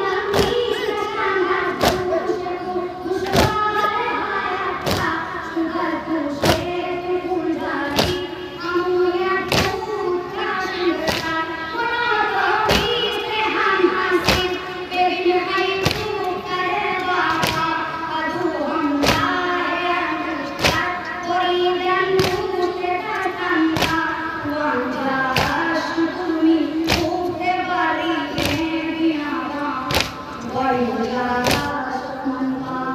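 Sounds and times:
boy chanting through microphone: 0.0s - 32.9s
hands beating on chests: 4.8s - 5.1s, 9.5s - 9.8s, 11.0s - 11.3s, 23.8s - 24.0s, 25.4s - 25.7s, 29.9s - 30.2s, 31.4s - 31.7s.

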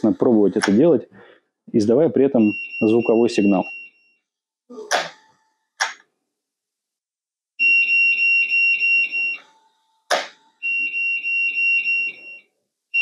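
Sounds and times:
pulsing high alarm tone: 7.6s - 9.5s, 10.6s - 13.0s.

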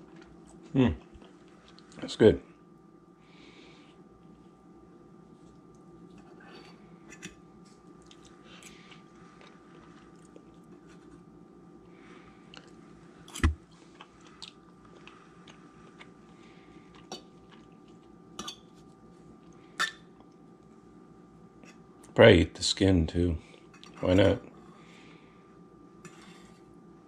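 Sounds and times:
quiet chewing: 0.0s - 2.0s, 3.9s - 20.7s, 23.5s - 24.6s
faint steady hum: 0.0s - 27.0s.

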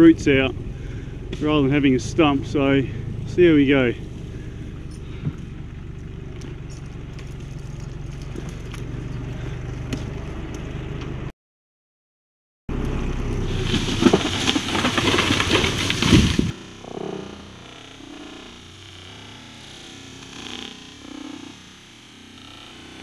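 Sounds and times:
engine running: 0.0s - 11.3s, 12.7s - 23.0s
crackling and snapping: 13.5s - 17.2s.

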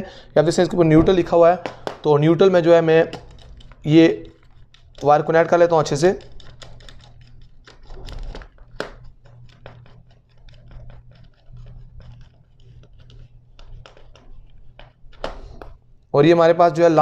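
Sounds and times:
screwdriver tightening a screw: 3.0s - 14.9s.

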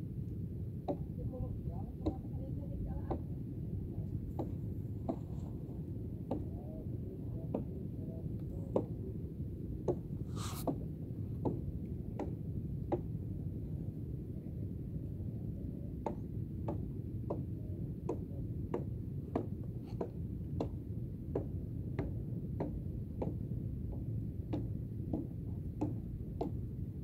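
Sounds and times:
steady low rumble: 0.0s - 27.0s.

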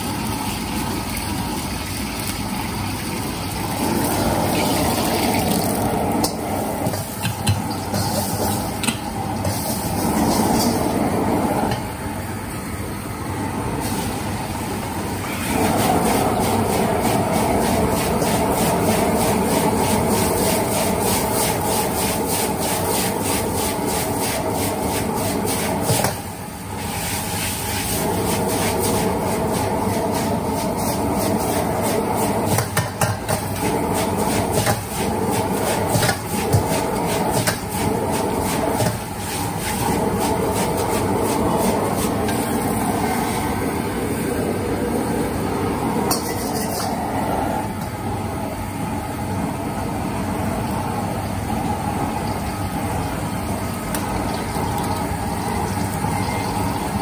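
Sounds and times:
noodles sizzling in a wok: 0.0s - 13.0s, 13.8s - 44.8s, 45.4s - 47.7s, 50.0s - 57.0s
gas burner rushing: 3.4s - 57.0s
steel ladle scraping a wok: 7.7s - 8.8s, 46.1s - 47.5s.

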